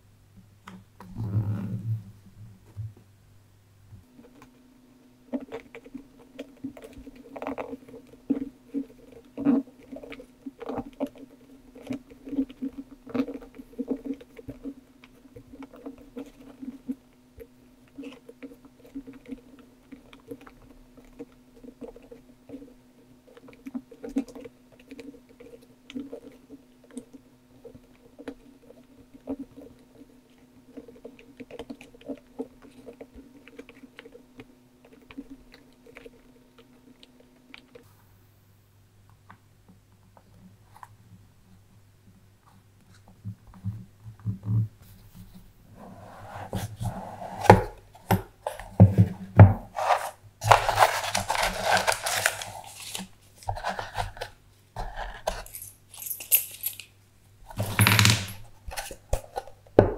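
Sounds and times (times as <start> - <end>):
low steady hum: 0.0 - 59.9.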